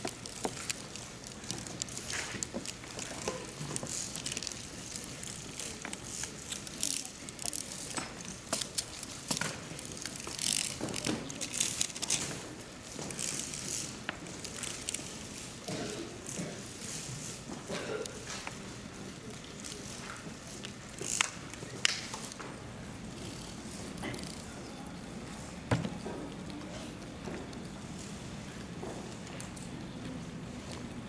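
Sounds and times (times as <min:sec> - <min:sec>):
abacus beads clicking: 0:00.0 - 0:12.3.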